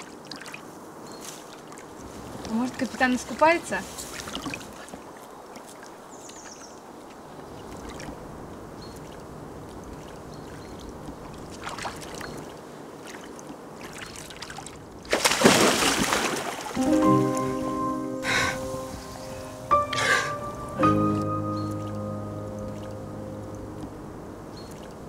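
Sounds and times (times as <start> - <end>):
small splashes from feet: 0.0 - 3.0, 3.8 - 8.2, 8.8 - 16.8
stream water trickling: 0.0 - 17.7, 18.9 - 25.0
person jumping into water: 11.5 - 16.8.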